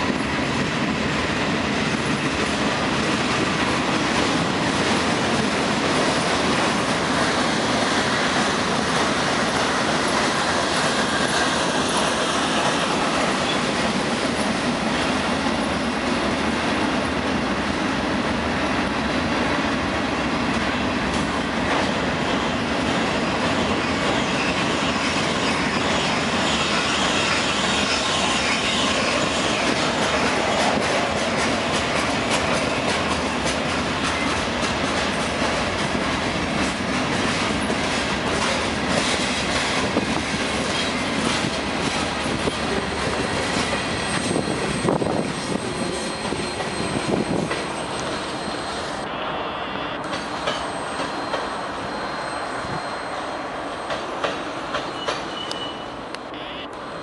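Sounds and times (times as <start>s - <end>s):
freight cars rumbling and rattling: 29.0s - 49.0s.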